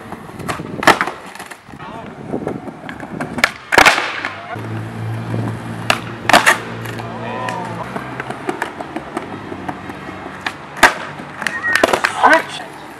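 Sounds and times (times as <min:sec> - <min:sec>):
skateboard clacking on paving: 0:00.0 - 0:12.9
skateboard pop: 0:00.1 - 0:01.6, 0:02.7 - 0:04.6, 0:05.8 - 0:12.4.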